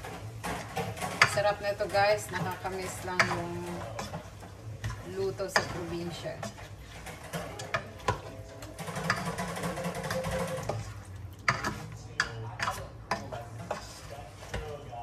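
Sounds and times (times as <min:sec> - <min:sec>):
spoon scraping through food in pot: 0:00.0 - 0:15.0.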